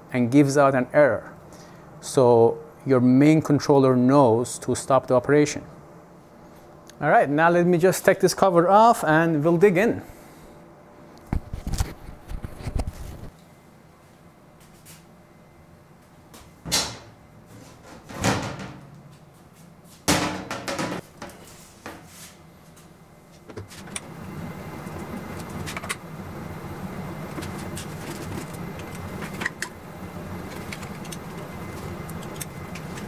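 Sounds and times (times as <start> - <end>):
metal panels knocking and scraping: 20.1 - 21.4
handling noise: 23.3 - 33.0.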